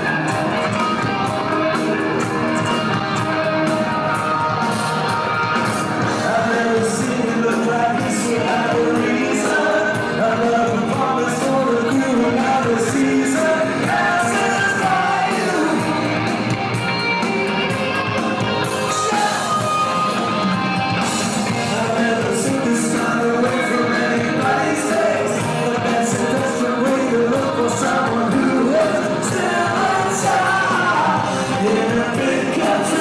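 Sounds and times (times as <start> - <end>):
rock band playing: 0.0 - 33.0
man singing: 6.0 - 16.7, 18.9 - 19.7, 21.4 - 33.0.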